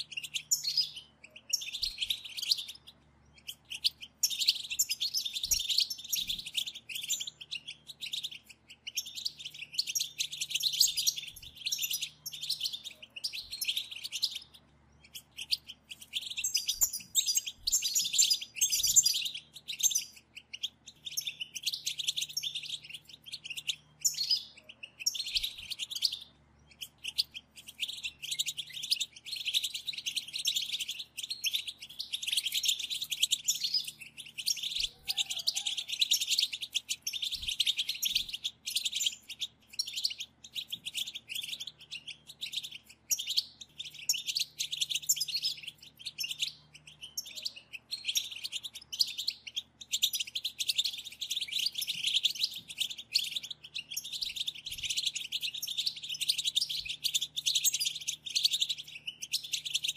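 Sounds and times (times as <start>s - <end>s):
goldfinches twittering: 0.0s - 59.9s.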